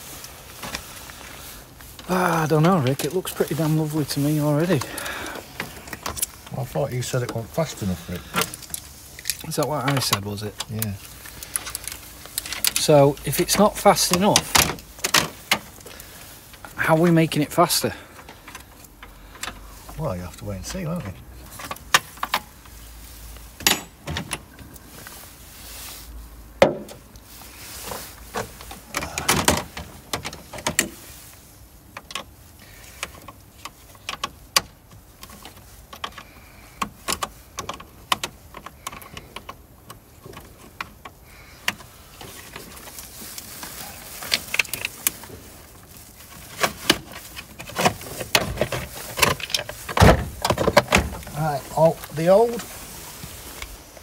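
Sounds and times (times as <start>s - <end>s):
tools clicking and clanking: 23.6s - 24.7s.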